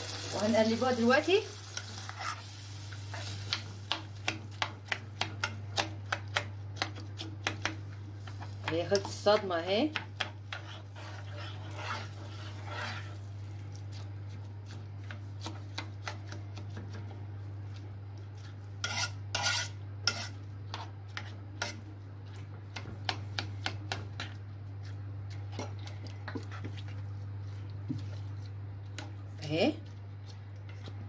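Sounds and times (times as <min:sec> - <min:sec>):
faint sizzle: 0:00.0 - 0:31.0
steady low hum: 0:00.0 - 0:31.0
metal spoon scraping a pot: 0:10.2 - 0:13.2, 0:18.4 - 0:21.8.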